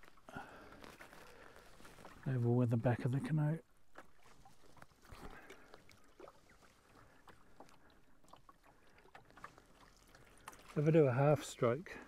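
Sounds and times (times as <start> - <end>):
paddle splashing and dripping: 3.6 - 12.0.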